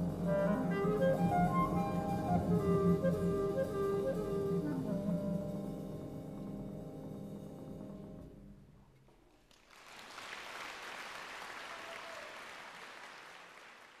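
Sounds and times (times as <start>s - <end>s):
clarinet: 0.0s - 6.3s
audience applause: 9.3s - 14.0s.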